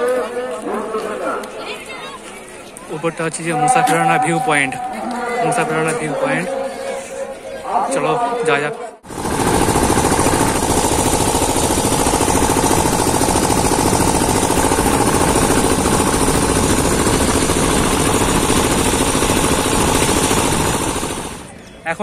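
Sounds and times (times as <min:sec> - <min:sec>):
vehicle engine running: 0:09.1 - 0:21.4.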